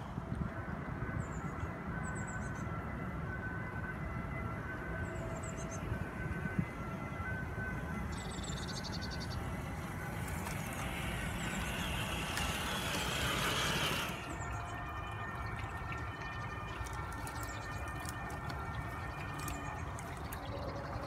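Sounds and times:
toy car driving through grass: 8.6s - 14.5s.

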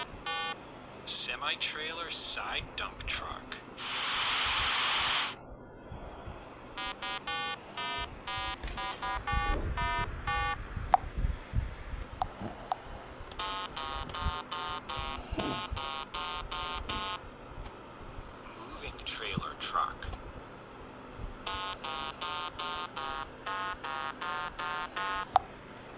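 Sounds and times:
retro noise hiss effect: 3.8s - 5.4s
short electronic beeps: 13.4s - 17.2s.

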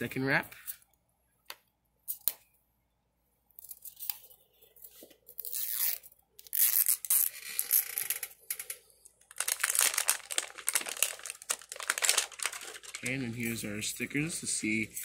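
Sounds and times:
wrapping tearing and crinkling: 5.3s - 13.6s.

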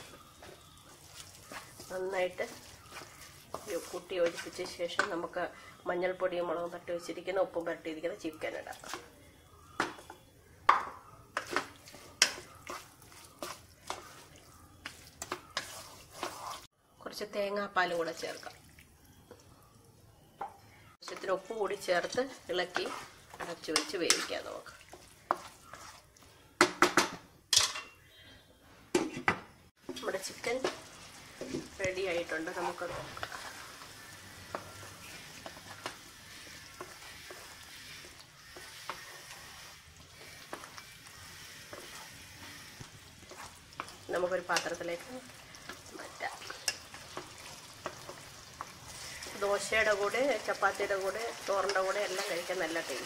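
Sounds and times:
spoon scraping a pan: 0.0s - 5.4s, 10.8s - 16.7s, 21.0s - 26.1s, 29.9s - 53.0s.

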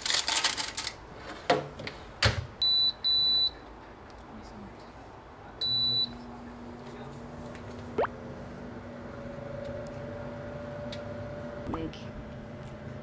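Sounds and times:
high electronic appliance beep: 2.6s - 3.5s, 5.6s - 6.1s.

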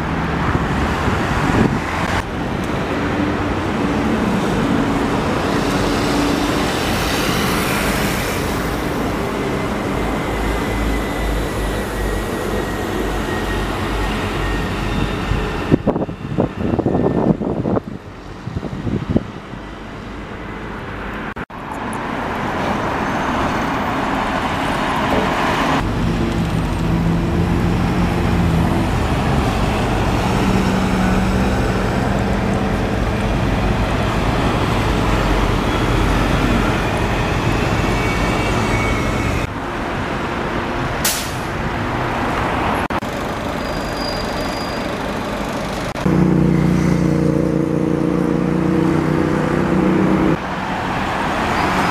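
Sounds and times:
bus engines: 0.0s - 51.9s
road traffic: 0.0s - 51.9s
short sharp hiss: 41.0s - 41.5s.

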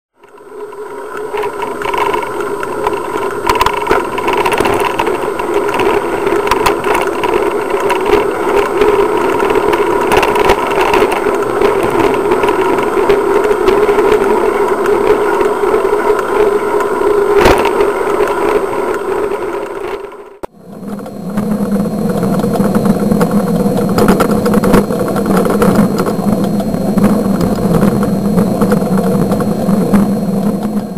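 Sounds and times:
vehicle engine and road noise: 0.2s - 30.9s.

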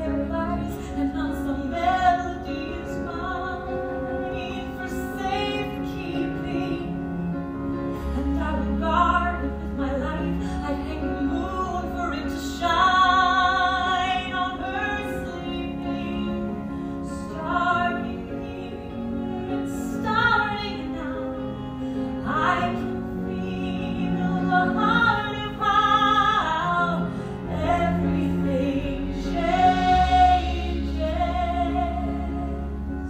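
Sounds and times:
woman singing with vibrato: 0.0s - 7.2s, 8.1s - 33.0s
band accompaniment: 13.8s - 33.0s
deep bass notes: 22.8s - 33.0s.

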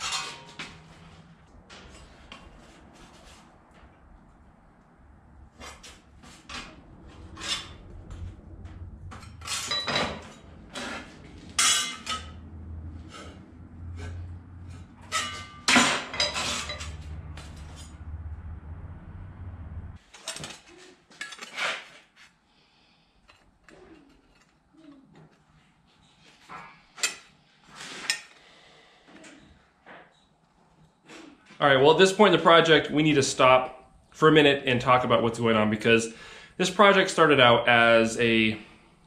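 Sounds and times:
steady low hum: 0.0s - 20.0s.

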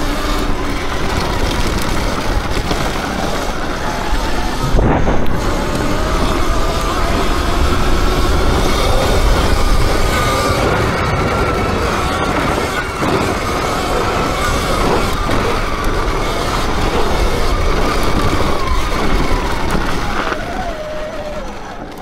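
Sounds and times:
electric motor whine: 0.0s - 22.0s
low rumble: 0.0s - 22.0s.

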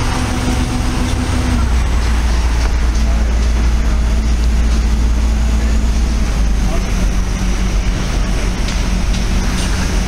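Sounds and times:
faint engine hum: 0.0s - 10.0s
street traffic rumble: 0.0s - 10.0s.

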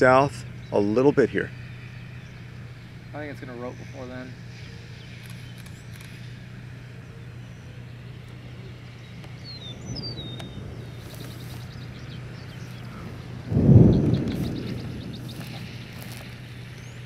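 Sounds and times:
steady low hum: 0.0s - 17.0s
bird chirps: 0.2s - 17.0s
loud low rumble: 9.5s - 17.0s.

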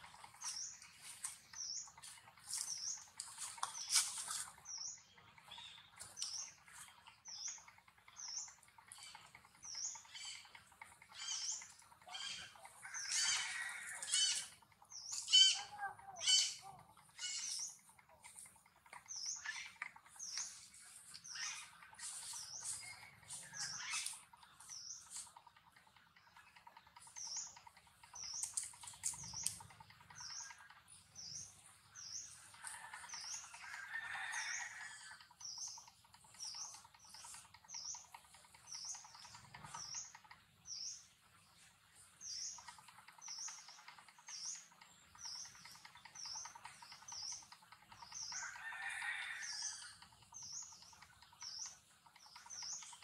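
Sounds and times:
harsh bird calls: 0.0s - 25.5s
small birds chirping: 0.0s - 53.0s.

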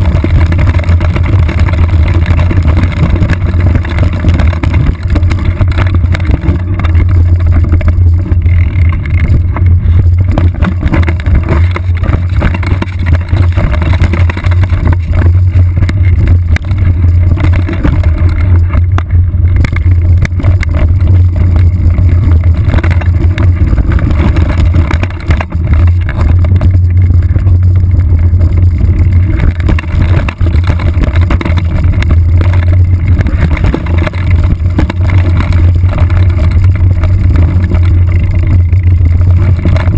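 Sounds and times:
bike knocks and rattles: 0.0s - 39.9s
wind rumble: 0.0s - 39.9s.

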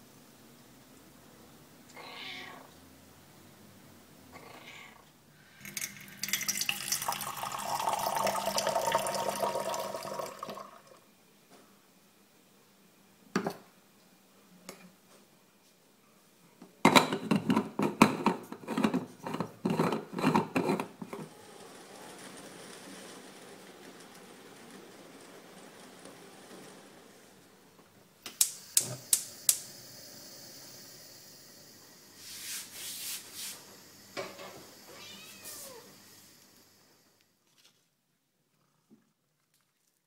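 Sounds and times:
cat meowing faintly: 1.9s - 2.8s, 4.3s - 5.1s, 34.9s - 36.0s
tap water running into metal pot: 5.6s - 11.0s.

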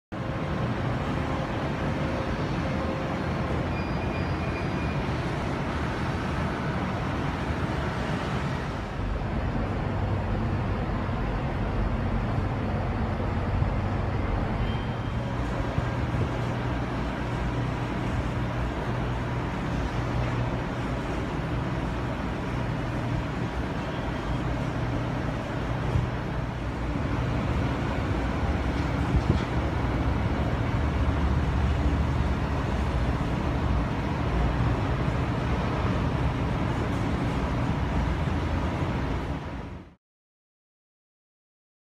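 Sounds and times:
distant road traffic rumble: 0.1s - 39.9s.

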